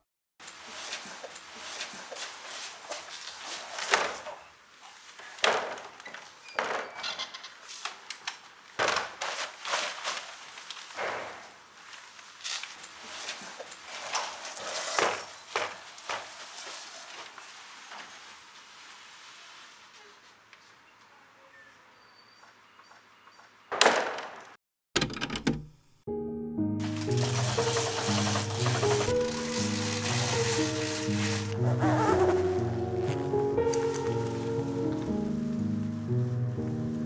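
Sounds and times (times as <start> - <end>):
body dragged across tiled floor: 0.6 - 5.4, 9.2 - 20.8, 26.8 - 36.0.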